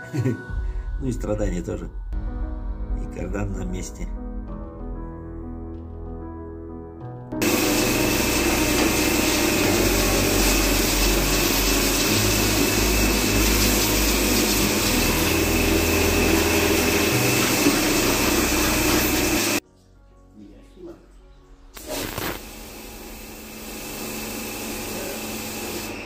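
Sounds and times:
pressure washer spray hissing: 7.4s - 19.6s, 21.8s - 26.0s
pump droning: 7.4s - 19.6s, 21.8s - 26.0s.

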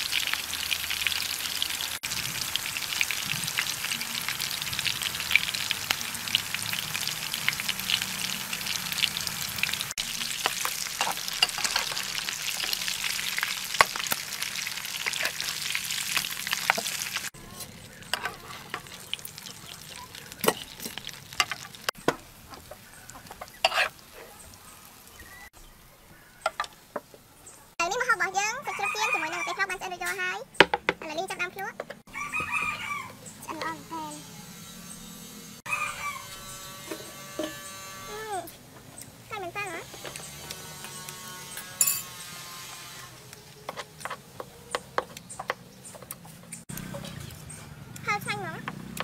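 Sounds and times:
food sizzling in oil: 0.0s - 25.5s, 39.3s - 44.3s
metal spatula scraping pan: 10.4s - 12.8s, 17.6s - 19.1s, 23.3s - 24.3s, 40.8s - 42.9s.

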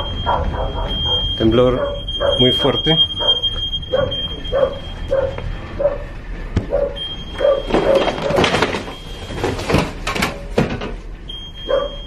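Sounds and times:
dog barking: 0.0s - 8.1s, 11.6s - 12.0s.

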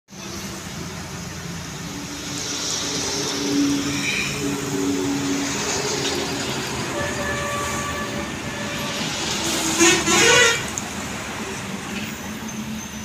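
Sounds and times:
vehicle horn: 6.9s - 10.8s.

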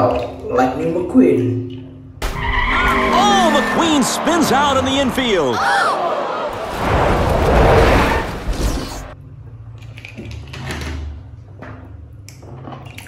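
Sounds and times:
race car spinning out: 2.3s - 9.2s.

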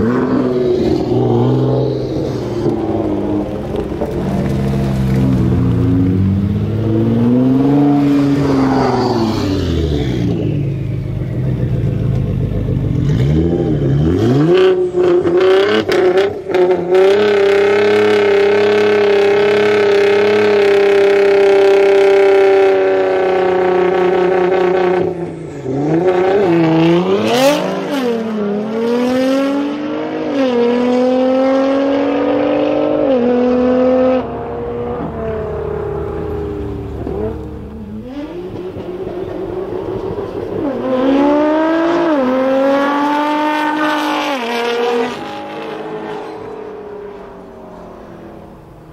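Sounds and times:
car engine revving hard: 11.4s - 48.8s.

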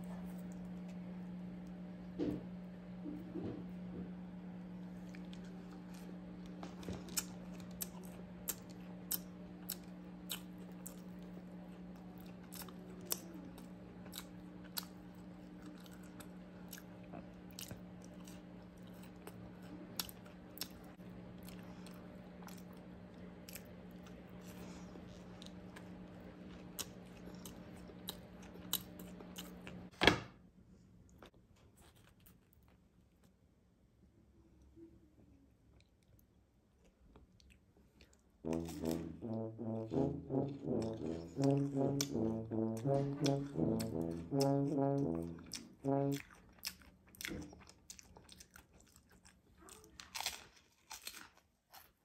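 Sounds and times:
chewing crunchy pastry: 0.0s - 1.8s, 4.8s - 29.9s, 31.1s - 33.5s, 34.6s - 52.0s
steady low hum: 0.0s - 30.0s, 37.8s - 48.0s.

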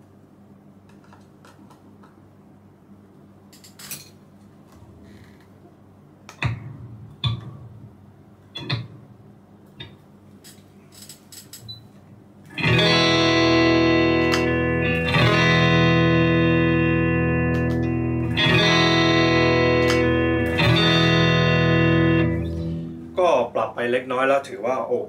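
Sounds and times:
electric guitar chord strummed: 12.5s - 23.2s.

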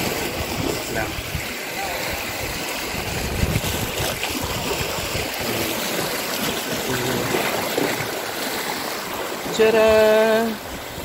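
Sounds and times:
wind buffeting microphone: 0.0s - 5.7s
sea waves washing against rocks: 0.0s - 11.0s.

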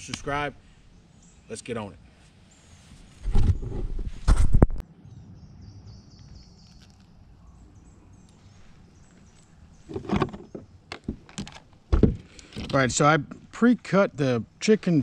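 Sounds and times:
bird chirping: 0.0s - 3.8s, 4.9s - 11.3s
camera handling bumps and rustling: 9.9s - 12.9s.

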